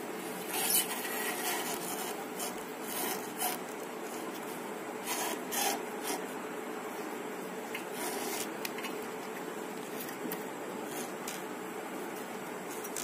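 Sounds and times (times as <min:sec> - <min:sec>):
steady low hiss: 0:00.0 - 0:13.0
belt rubbing on pulley: 0:00.5 - 0:06.3, 0:07.8 - 0:08.5.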